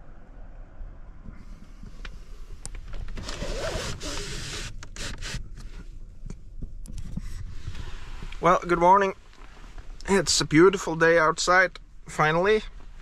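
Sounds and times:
low steady rumble: 0.0s - 13.0s
rasping slide: 3.1s - 5.8s.

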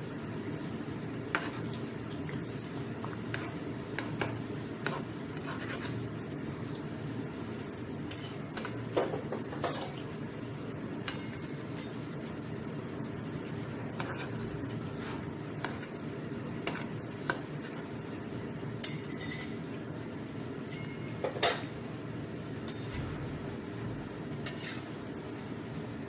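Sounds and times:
food deep-frying in oil: 0.0s - 26.0s
metal spatula clinking on pan: 20.7s - 21.6s.

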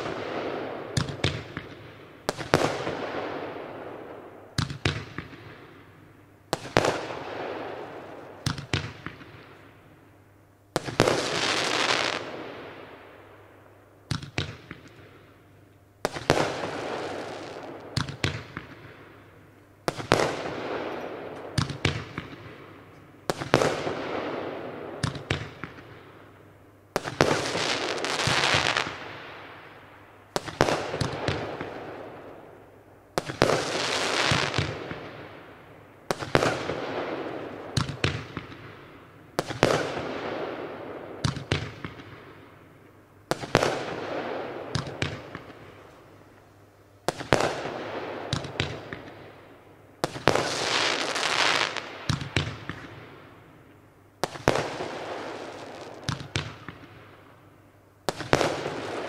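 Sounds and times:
firework hiss and pops: 10.8s - 12.4s, 16.0s - 18.7s, 27.0s - 29.0s, 33.2s - 35.0s, 50.0s - 53.0s, 54.2s - 57.0s
firework bangs: 10.8s - 12.9s, 27.0s - 29.3s, 33.2s - 35.3s, 50.0s - 53.2s, 58.1s - 59.0s.

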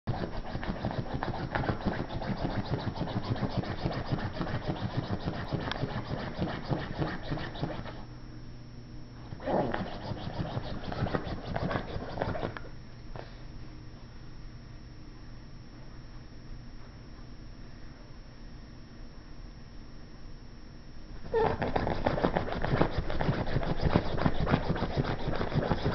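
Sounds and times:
claws scratching fabric: 0.1s - 8.0s, 9.6s - 12.6s, 21.4s - 25.9s.

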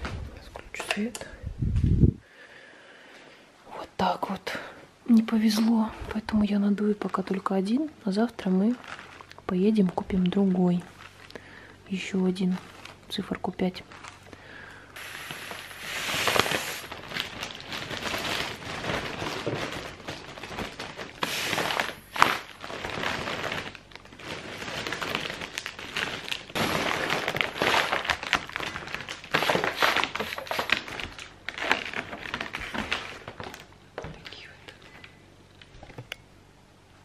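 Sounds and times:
foil balloon crinkling: 5.4s - 11.6s, 12.3s - 35.1s
helium gas hissing: 15.0s - 16.9s.

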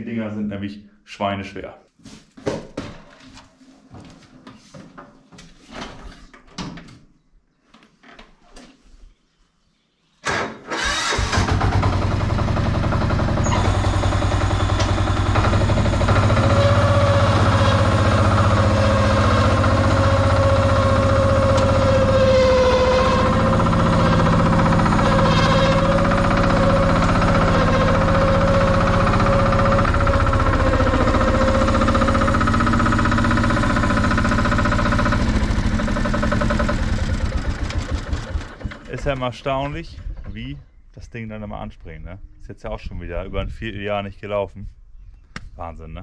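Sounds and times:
tractor diesel engine idling: 10.8s - 39.0s.

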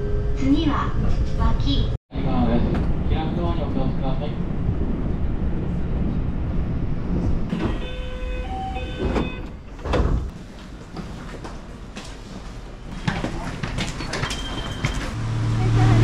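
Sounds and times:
train rumbling: 0.0s - 16.0s
train doors sliding open: 7.1s - 11.5s.

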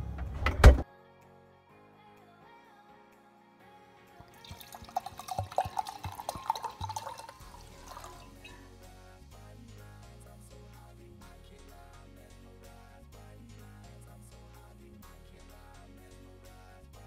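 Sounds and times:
background music: 0.0s - 17.0s
liquid pouring into glass: 4.3s - 8.6s.

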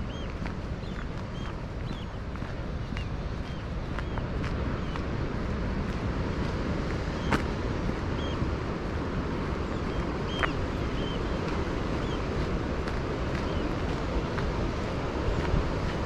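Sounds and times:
high bird calls: 0.0s - 2.2s, 2.8s - 5.1s, 9.7s - 12.4s
wind buffeting microphone: 0.0s - 16.0s.

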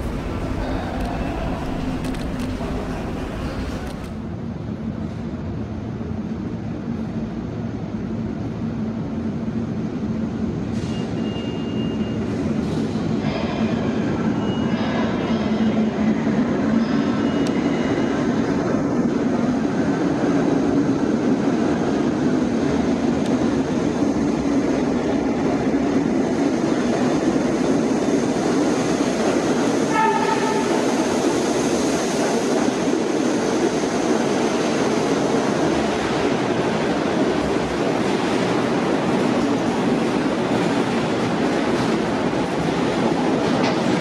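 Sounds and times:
train running on track: 0.0s - 44.0s
train horn blast: 29.8s - 30.9s.

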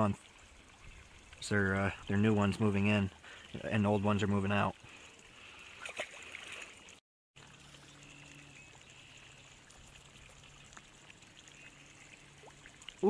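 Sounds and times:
fish splashing into pond: 5.1s - 13.0s.

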